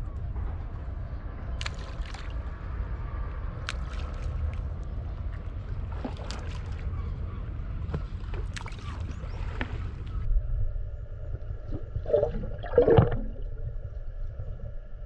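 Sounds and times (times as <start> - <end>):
low rumble: 0.0 - 15.0
chum splashing into water: 12.1 - 13.6.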